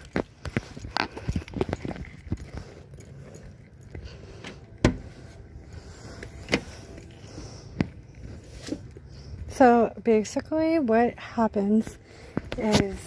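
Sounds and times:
keys jangling: 0.0s - 9.1s
car hatch unlatching and opening: 4.4s - 5.2s, 6.3s - 6.9s.

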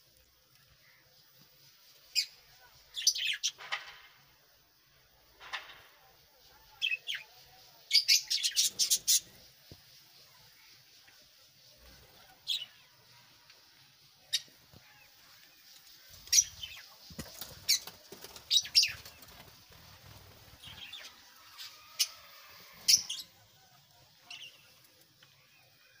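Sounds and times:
lovebirds shrill chirps: 7.9s - 10.8s, 14.3s - 19.3s, 20.1s - 24.8s.

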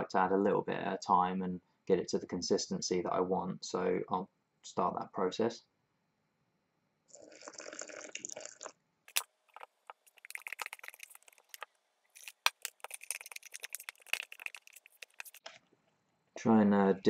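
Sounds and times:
hot water pouring into a cup: 7.1s - 11.6s, 12.2s - 15.4s
spoon stirring and scraping a cup: 12.2s - 15.5s.

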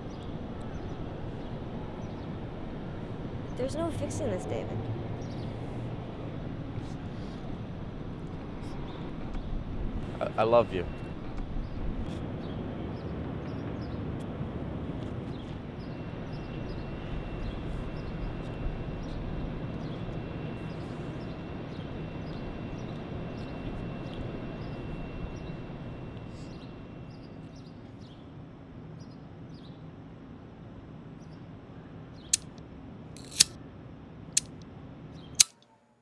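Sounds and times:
distant city traffic: 0.0s - 27.7s.

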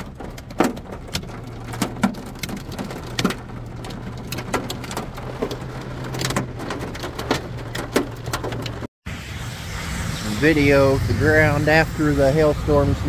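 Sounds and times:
hailstones knocking on car: 0.0s - 8.9s
low hum: 9.1s - 13.0s
rain hiss: 9.1s - 13.0s.

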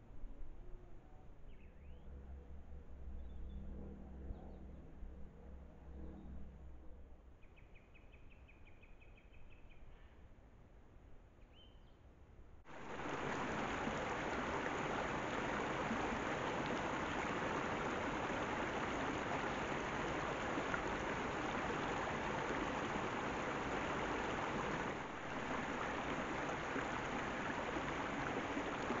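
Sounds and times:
faint high bird chirps: 7.4s - 10.2s, 11.4s - 12.0s
stream rushing over rocks: 12.7s - 29.0s.

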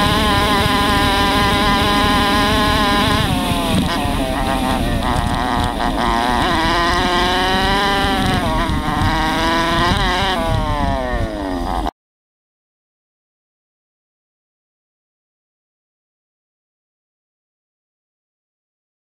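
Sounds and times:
dirt bike engine revving: 0.0s - 11.9s.

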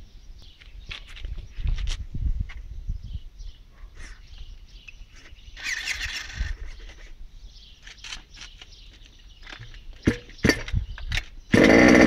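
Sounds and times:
birds chirping: 0.0s - 1.9s, 2.5s - 12.0s
wind rumble on microphone: 0.0s - 7.7s, 9.6s - 11.6s
quick high bird calls: 5.1s - 7.0s.

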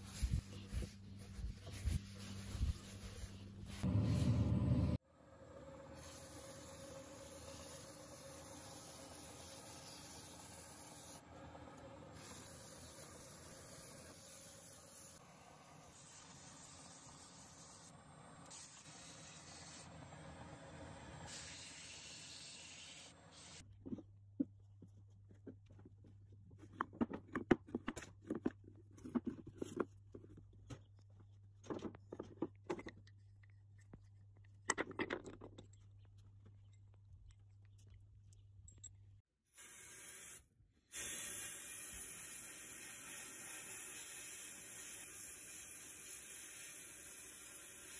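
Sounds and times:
steady low hum: 0.2s - 6.0s
sandpaper hissing on spinning wood: 41.0s - 47.9s.

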